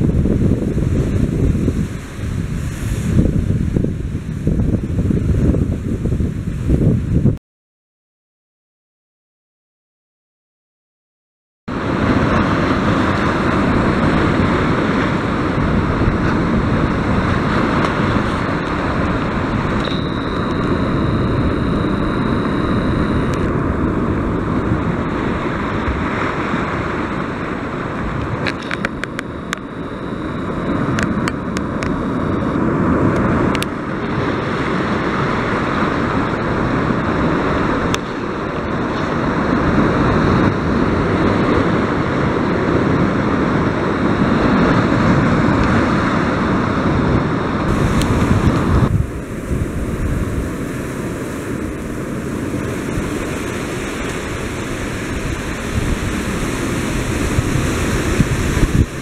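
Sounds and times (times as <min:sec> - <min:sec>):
wind buffeting microphone: 0:00.0 - 0:07.4, 0:11.7 - 0:59.0
waves breaking against rocks: 0:47.7 - 0:59.0.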